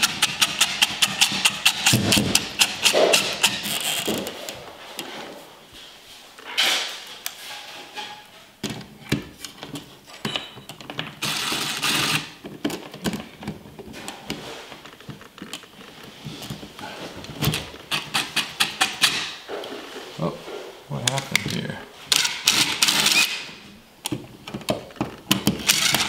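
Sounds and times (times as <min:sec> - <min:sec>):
impact driver driving screws: 0:00.0 - 0:04.2, 0:11.2 - 0:12.4, 0:22.2 - 0:23.5, 0:25.3 - 0:26.0
tapping and handling: 0:24.0 - 0:26.0.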